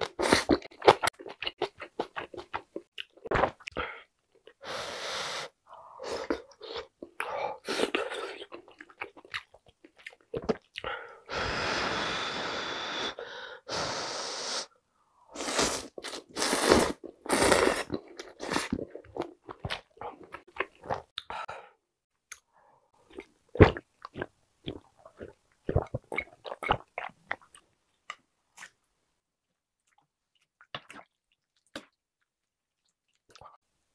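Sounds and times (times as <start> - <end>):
person slurping noodles: 15.4 - 18.9.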